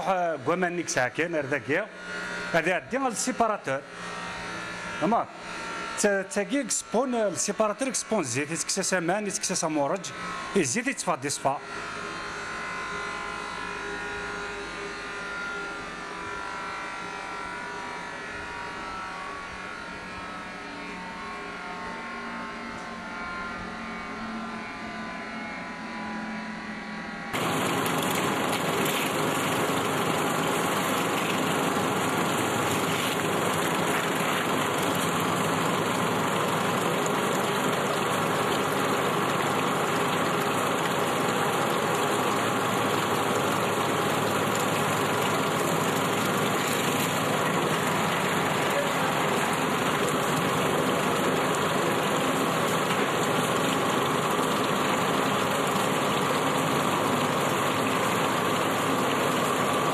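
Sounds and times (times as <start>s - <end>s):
loud mill machinery running: 27.3s - 59.9s
oil separator humming: 27.4s - 59.9s.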